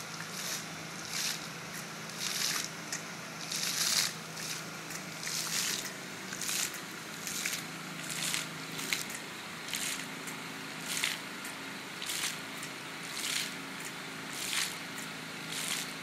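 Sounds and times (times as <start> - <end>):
fountain jets splashing: 0.0 - 2.8, 3.4 - 10.1, 10.8 - 11.3, 12.0 - 12.5, 13.1 - 13.6, 14.3 - 16.0
steady low hum: 0.0 - 16.0.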